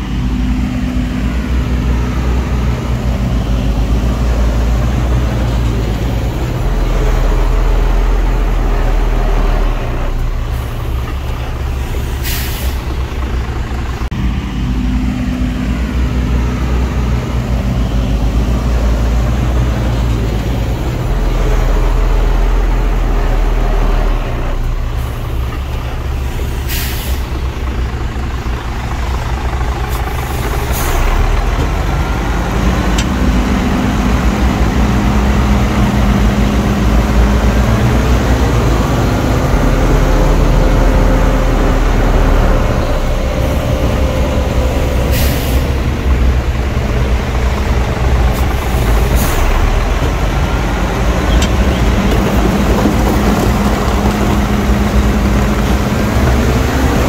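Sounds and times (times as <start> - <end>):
heavy diesel engines running: 0.0 - 57.0
air brake hiss: 11.8 - 12.9, 26.3 - 27.4, 45.0 - 45.8.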